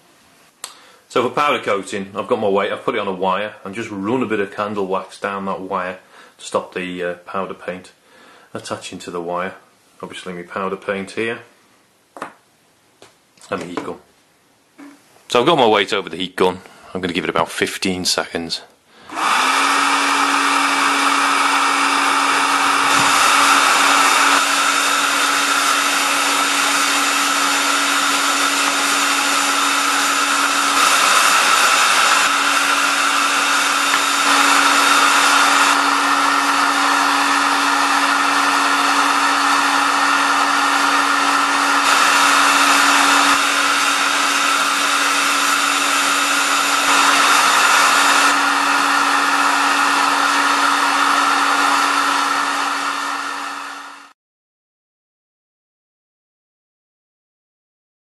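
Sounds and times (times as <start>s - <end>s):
heat gun blowing air: 19.0s - 54.2s.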